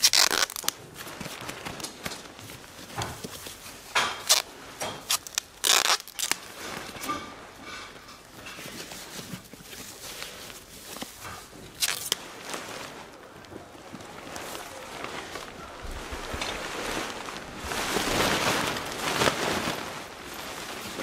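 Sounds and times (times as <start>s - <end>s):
tent pole scrapes and clicks: 0.0s - 2.2s, 4.2s - 6.5s, 8.5s - 12.2s
tent fabric rustling: 0.0s - 21.0s.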